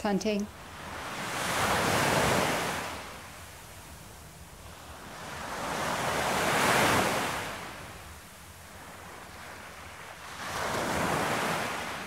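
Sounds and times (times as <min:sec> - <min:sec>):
ocean waves washing ashore: 0:00.0 - 0:12.0.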